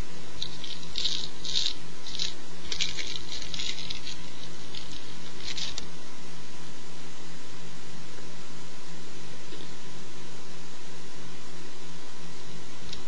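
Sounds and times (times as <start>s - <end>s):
faint electrical hum: 0.0s - 13.0s
light crinkly rustling: 0.4s - 5.9s.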